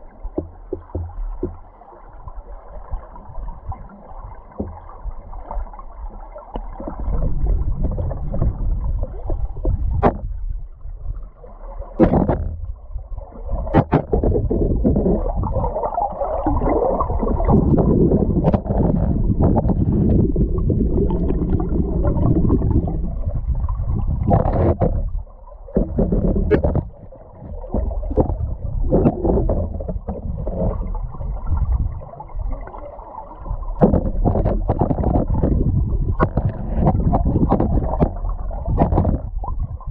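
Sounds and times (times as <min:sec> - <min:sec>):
muffled underwater river rush: 0:00.0 - 0:39.9.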